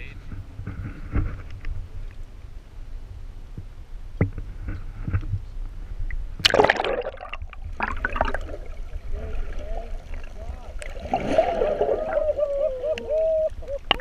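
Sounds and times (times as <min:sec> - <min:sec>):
water sloshing and gurgling: 0:04.2 - 0:14.0
splash into water: 0:06.4 - 0:12.2.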